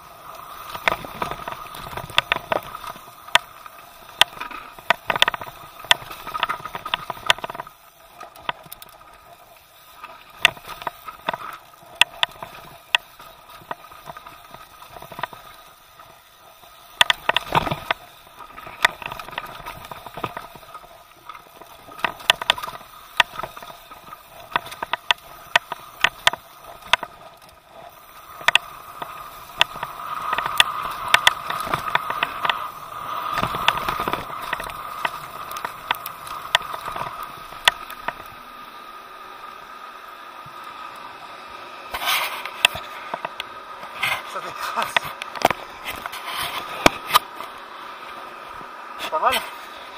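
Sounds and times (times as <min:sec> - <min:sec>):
rushing tyre noise: 0:09.6 - 0:49.9
bike chain and frame clattering: 0:16.4 - 0:38.4.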